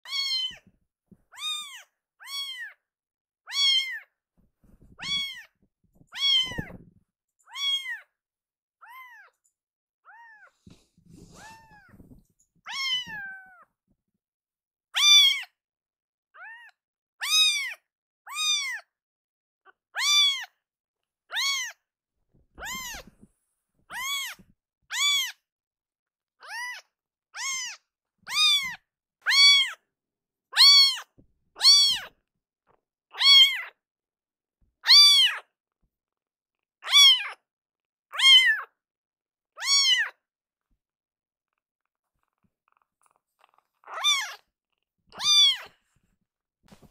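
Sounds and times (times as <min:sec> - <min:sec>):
kitten meowing loudly: 0:00.0 - 0:00.6, 0:01.4 - 0:02.8, 0:03.5 - 0:04.0, 0:05.0 - 0:05.5, 0:06.2 - 0:06.8, 0:07.5 - 0:08.0, 0:12.7 - 0:13.6, 0:15.0 - 0:15.5, 0:16.4 - 0:18.8, 0:20.0 - 0:20.5, 0:21.3 - 0:21.8, 0:22.6 - 0:23.1, 0:23.9 - 0:25.4, 0:27.4 - 0:29.8, 0:30.6 - 0:32.1, 0:33.1 - 0:33.8, 0:34.8 - 0:35.4, 0:36.8 - 0:37.4, 0:38.1 - 0:38.7, 0:39.6 - 0:40.2, 0:43.9 - 0:44.4, 0:45.1 - 0:45.7.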